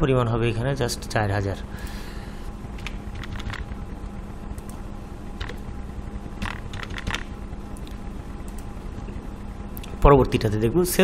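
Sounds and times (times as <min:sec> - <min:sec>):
low electrical hum: 0:00.0 - 0:11.0
computer keyboard keystrokes: 0:02.8 - 0:03.7, 0:06.4 - 0:08.7.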